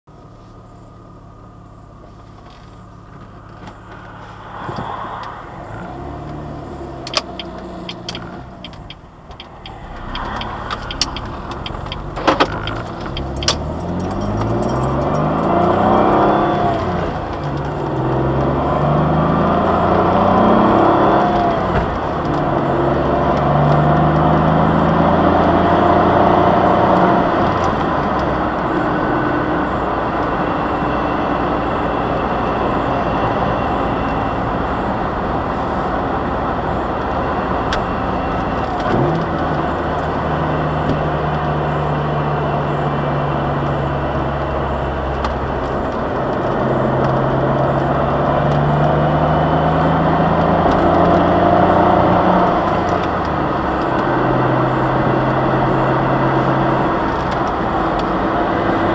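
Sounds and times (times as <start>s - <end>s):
car engine accelerating: 0.0s - 58.9s
road noise: 0.0s - 58.9s
sharp clicks: 7.0s - 15.2s.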